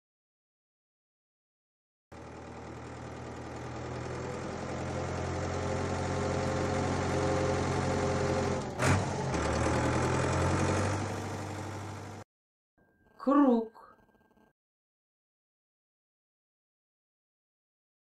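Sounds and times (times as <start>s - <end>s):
tractor engine running: 2.1s - 12.2s.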